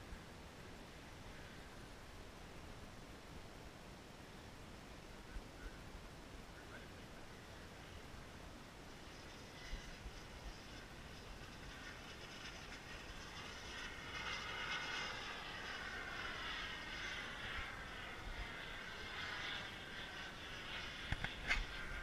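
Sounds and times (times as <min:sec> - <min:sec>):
model jet turbine whining: 0:06.9 - 0:22.0.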